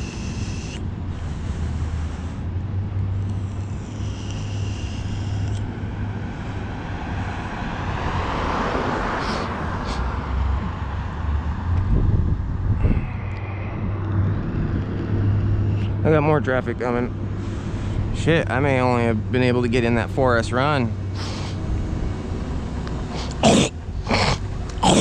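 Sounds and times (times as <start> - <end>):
steady low rumble: 0.0 - 7.7, 10.6 - 24.8
car driving past: 3.0 - 18.0.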